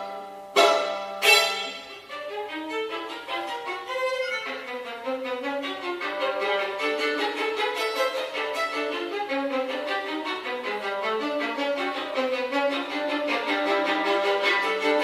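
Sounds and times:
solo violin playing short notes: 0.0s - 15.0s.

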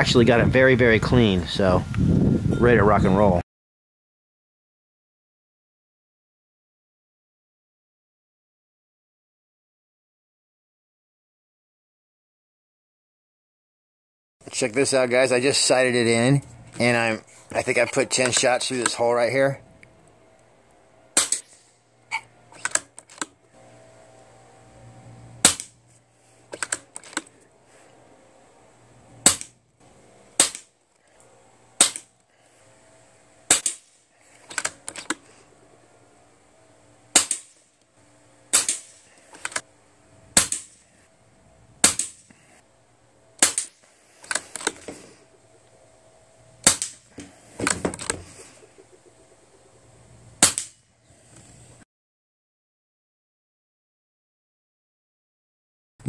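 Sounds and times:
air rifle shots cracking: 21.2s - 21.6s, 30.4s - 30.7s, 31.8s - 32.1s, 33.5s - 35.2s, 37.1s - 37.6s, 38.5s - 39.5s, 40.4s - 40.8s, 41.8s - 42.3s, 43.4s - 44.8s, 46.6s - 47.8s, 50.4s - 50.8s.

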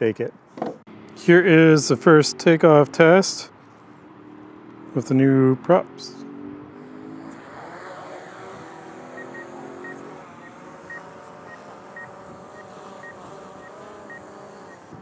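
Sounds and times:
drone propellers buzzing: 6.3s - 15.0s.

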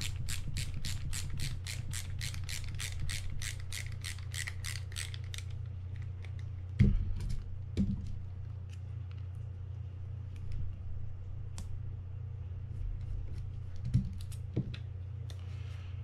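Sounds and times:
screwdriver clicking: 0.8s - 6.5s.

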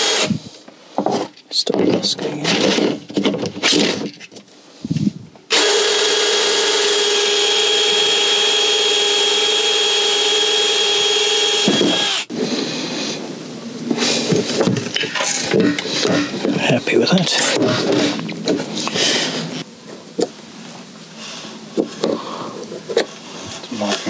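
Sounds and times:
cordless drill hole saw whining: 0.0s - 0.4s, 5.5s - 12.4s.

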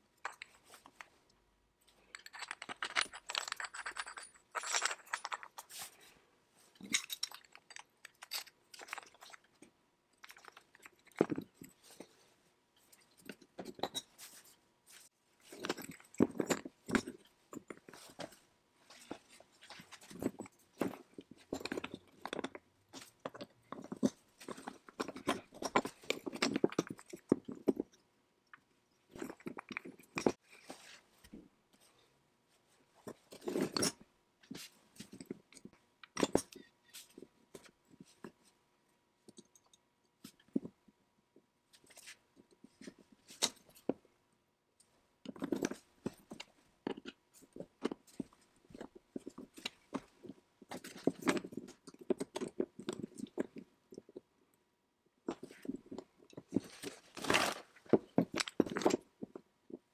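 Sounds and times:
metal and wood clicks and knocks: 0.0s - 1.2s, 1.9s - 5.7s, 15.5s - 30.4s, 55.3s - 59.9s.

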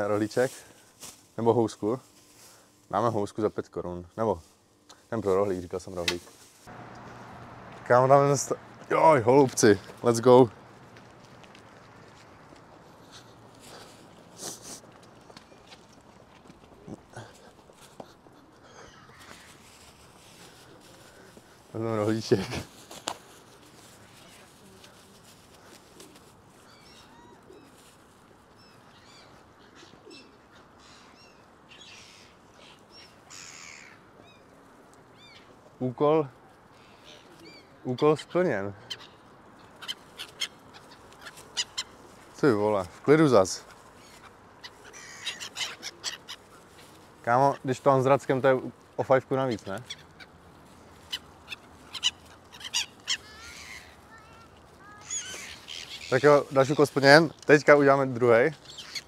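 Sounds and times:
gulls calling: 6.0s - 22.8s, 36.6s - 59.0s.

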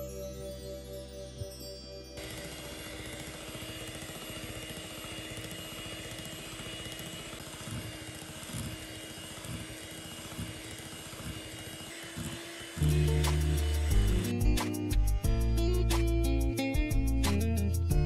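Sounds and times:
electric hand mixer whirring: 2.2s - 17.2s.

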